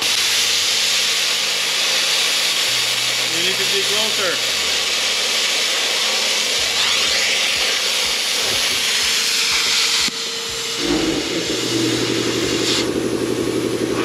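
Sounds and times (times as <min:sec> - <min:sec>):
plasma cutter hissing: 0:00.0 - 0:14.0
low pulsing hum: 0:10.5 - 0:14.0.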